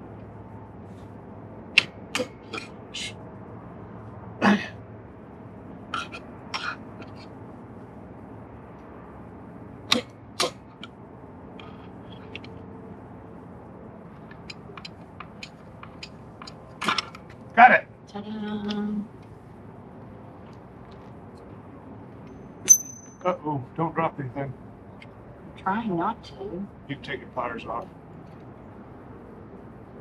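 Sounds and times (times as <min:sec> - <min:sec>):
hammer tapping on metal: 0:22.7 - 0:23.2.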